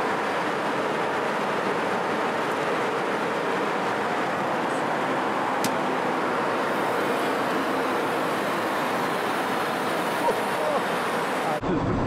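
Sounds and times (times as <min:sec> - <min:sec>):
jet cabin noise: 0:00.0 - 0:12.0.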